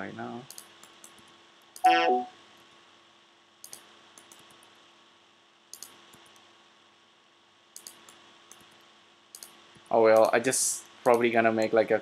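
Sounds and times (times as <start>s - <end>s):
steady low hum: 0.0s - 12.0s
computer clicks: 0.5s - 2.0s, 3.6s - 4.7s, 5.7s - 6.5s, 7.8s - 10.4s, 11.0s - 11.8s.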